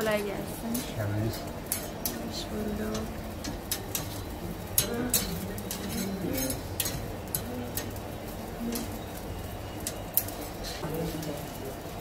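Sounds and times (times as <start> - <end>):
metal tongs clicking on grill grate: 0.7 - 8.0, 8.7 - 10.4
faint background voices: 4.0 - 12.0.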